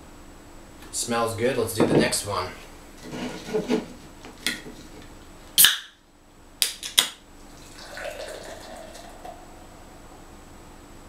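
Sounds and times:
beer pouring into glass: 0:07.5 - 0:09.7.

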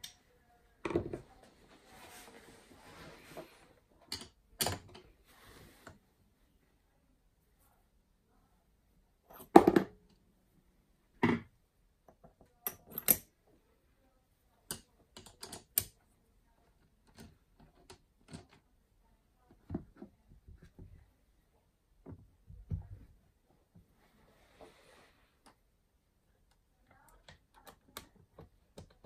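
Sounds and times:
metal parts clicking and knocking: 0:12.6 - 0:13.3.

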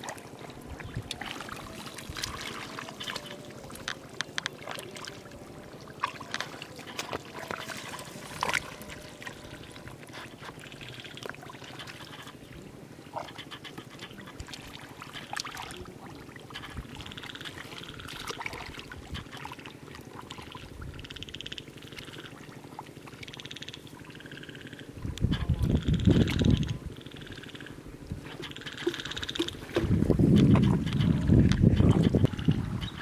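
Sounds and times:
hands splashing in muddy water: 0:01.0 - 0:03.8.

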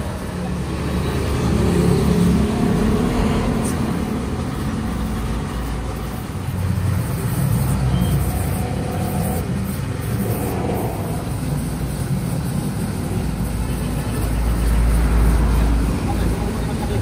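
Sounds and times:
low mechanical rumble: 0:00.0 - 0:17.0
air grinder buffing rubber: 0:03.6 - 0:17.0.

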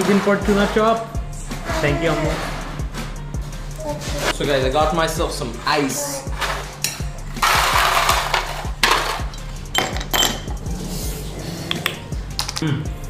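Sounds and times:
background music with low beat: 0:00.0 - 0:13.0
ice cubes clinking into glass: 0:07.4 - 0:10.5.

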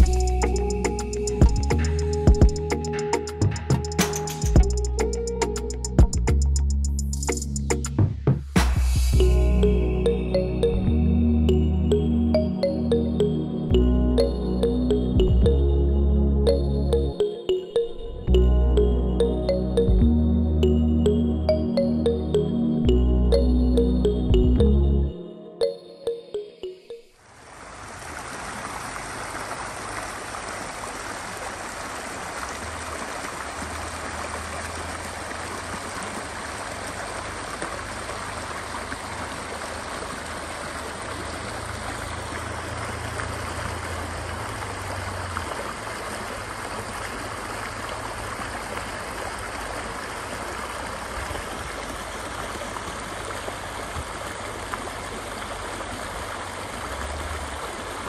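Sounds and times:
creek running over rocks: 0:27.2 - 0:58.0.

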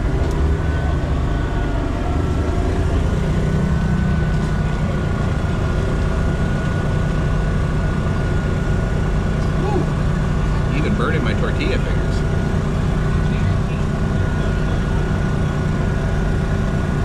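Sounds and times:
motor running with whine: 0:00.0 - 0:17.0.

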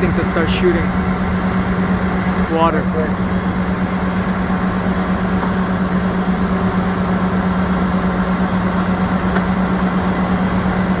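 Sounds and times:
diesel engine droning: 0:00.0 - 0:11.0.

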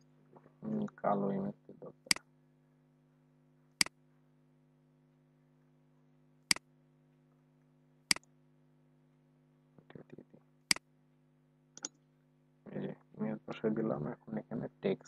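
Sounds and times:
faint steady hum: 0:00.0 - 0:15.0
computer mouse clicks: 0:11.8 - 0:12.0.

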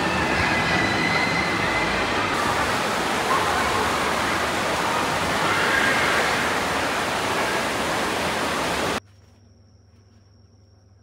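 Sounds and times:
rushing water: 0:00.0 - 0:09.0.

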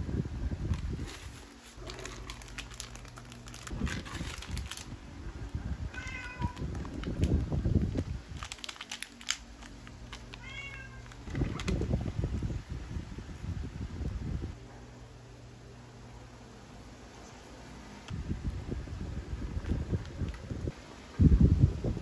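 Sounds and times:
bag and packet rustling: 0:00.6 - 0:12.5
cat meowing: 0:05.9 - 0:06.7, 0:10.4 - 0:11.1.

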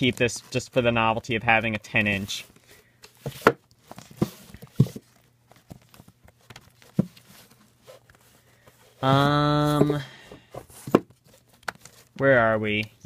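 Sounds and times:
person's hesitation sound: 0:09.0 - 0:10.2.

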